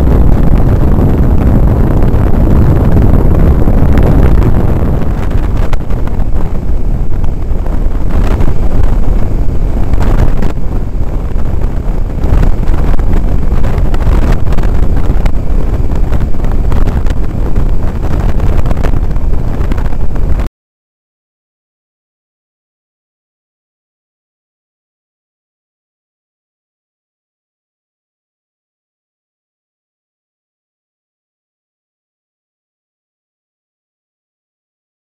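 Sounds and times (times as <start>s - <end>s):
wind buffeting helmet microphone: 0.0s - 20.5s.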